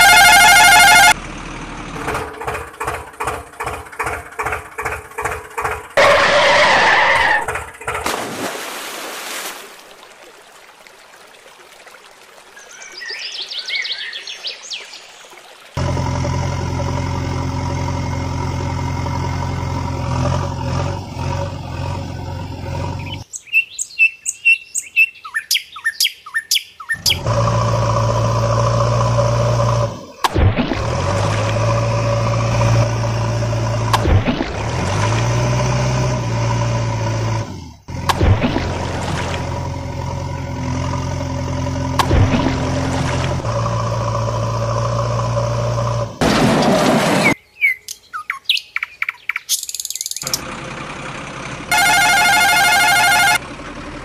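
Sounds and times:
heavy diesel engine running: 0.0 - 8.1, 15.8 - 23.2, 27.0 - 47.3, 50.2 - 54.0
birds chirping: 12.6 - 15.2, 22.1 - 27.3, 47.2 - 50.4.

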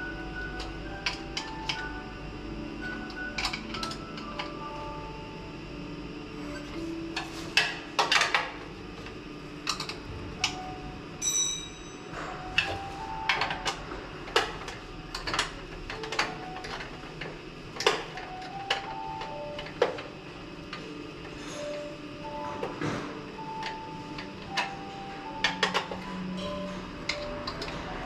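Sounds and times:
faint background music: 0.0 - 28.0.

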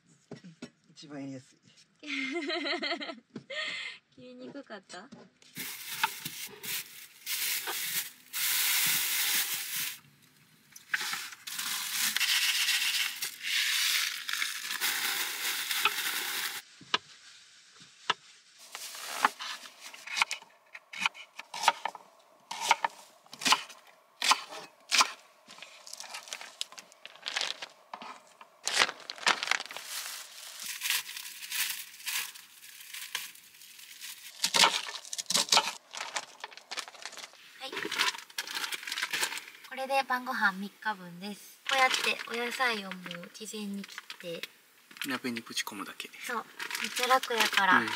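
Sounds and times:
plastic bag crinkling: 5.6 - 10.0, 10.9 - 16.6, 18.6 - 20.1, 25.4 - 39.7, 41.6 - 45.1, 46.4 - 47.9.

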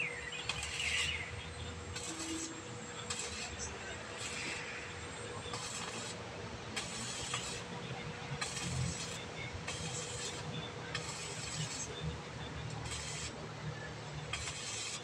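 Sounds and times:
arc welding hiss: 0.0 - 12.0, 12.8 - 13.4, 14.2 - 15.0.

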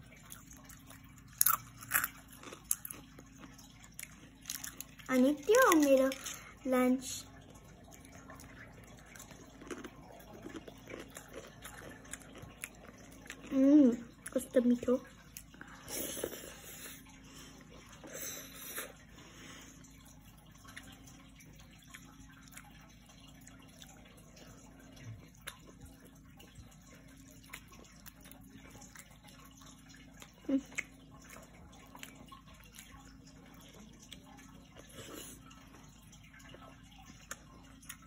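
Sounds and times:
chewing: 0.1 - 6.6, 7.4 - 14.4, 21.6 - 38.0.

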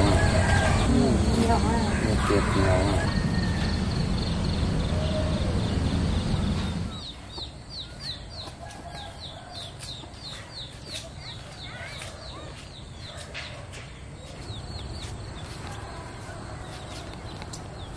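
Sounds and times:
rooster crowing: 0.0 - 5.8, 8.6 - 9.7
steady low rumble: 0.0 - 7.8
small bird chirping: 0.0 - 13.6, 14.2 - 17.9.

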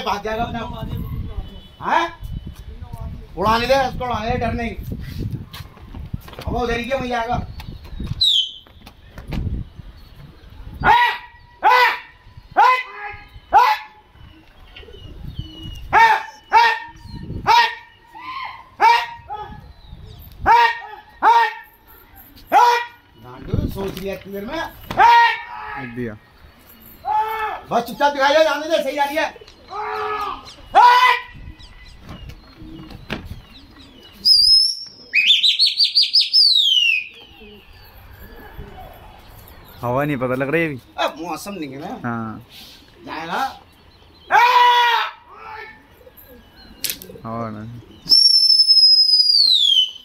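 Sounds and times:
loud human whistling: 48.1 - 50.0.

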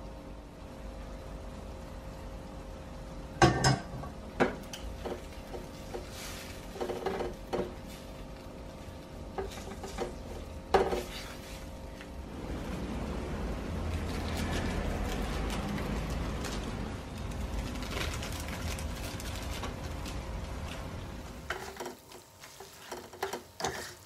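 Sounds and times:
steady low hum: 0.0 - 24.0
spatula clanking and scraping pan: 9.4 - 11.6, 21.5 - 24.0.

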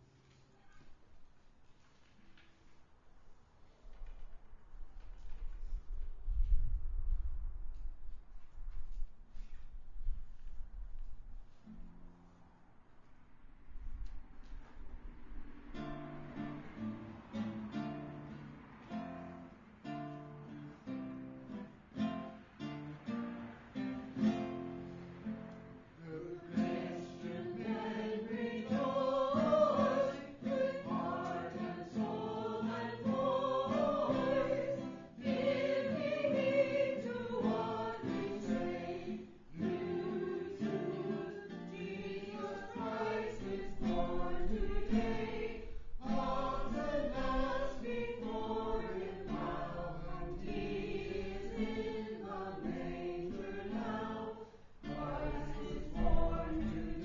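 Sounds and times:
acoustic guitar strumming: 15.8 - 57.0
group singing a carol: 23.8 - 57.0.

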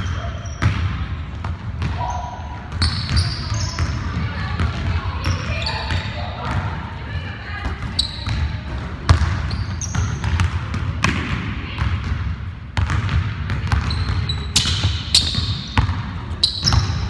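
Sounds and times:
sneakers squeaking: 0.0 - 6.9, 7.5 - 12.2, 12.8 - 17.0
basketball bouncing on wooden floor: 12.8 - 17.0.

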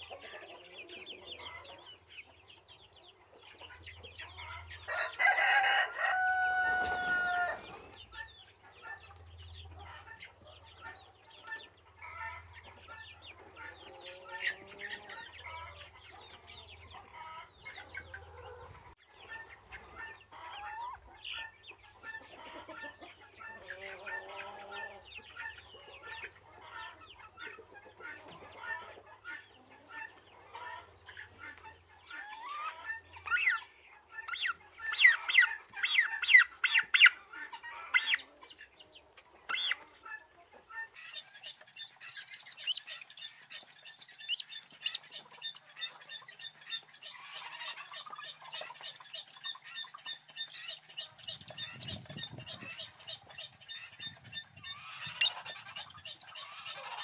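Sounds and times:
chickens clucking: 0.0 - 57.0
rooster crowing: 4.9 - 7.6.

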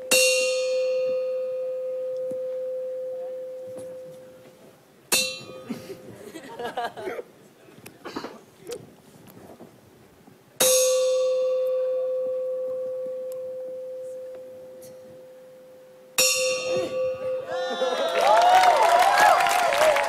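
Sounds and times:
audience cheering and shouting: 17.5 - 20.0.

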